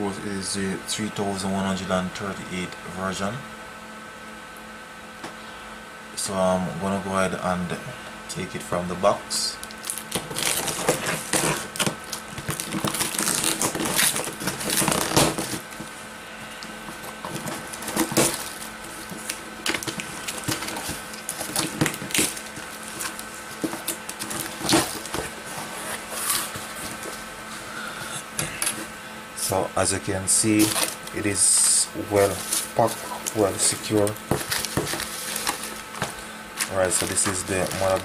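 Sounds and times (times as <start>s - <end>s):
packing tape tearing: 9.6s - 15.9s, 16.6s - 27.2s, 30.4s - 38.0s
cardboard flaps crackling: 9.8s - 16.0s, 16.8s - 27.3s, 30.5s - 38.0s
box rustles and knocks: 33.6s - 36.2s.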